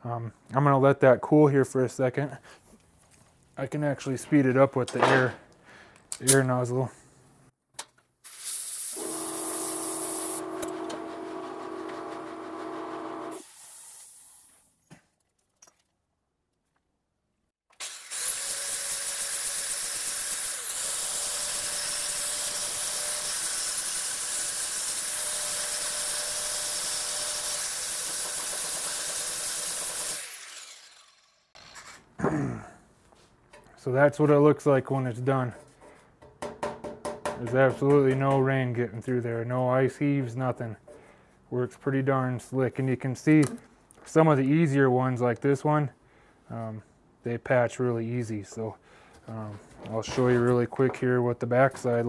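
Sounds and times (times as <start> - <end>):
compressed air nozzle hissing: 8.3 - 10.4
angle grinder whining: 9.0 - 13.4, 17.8 - 32.0.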